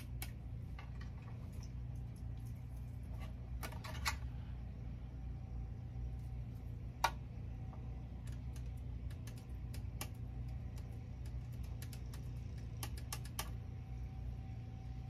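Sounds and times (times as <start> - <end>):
steady low hum: 0.0 - 15.0
clicks and taps on plastic: 6.9 - 13.7.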